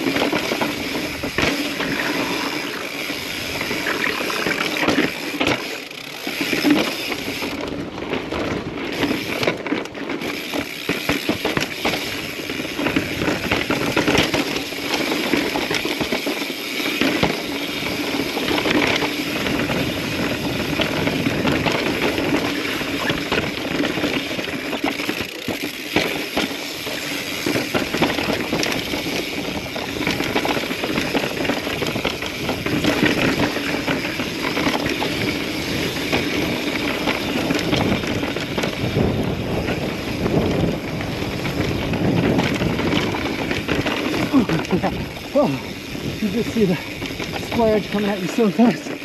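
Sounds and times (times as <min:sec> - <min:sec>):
bike knocking and rattling: 0:00.0 - 0:49.0
bike tyre rushing over rock: 0:00.0 - 0:49.0.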